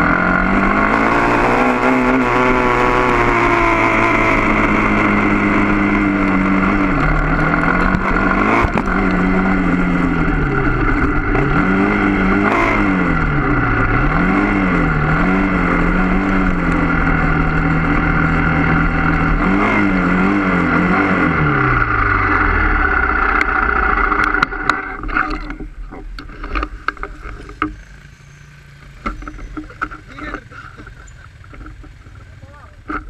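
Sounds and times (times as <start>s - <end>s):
motorcycle engine revving: 0.0s - 33.0s
sharp clicks and knocks: 6.2s - 9.4s, 23.3s - 27.8s, 28.8s - 33.0s.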